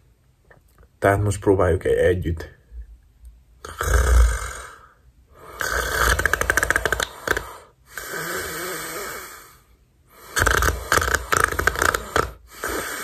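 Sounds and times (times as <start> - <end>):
man fake-snoring: 3.6 - 13.0.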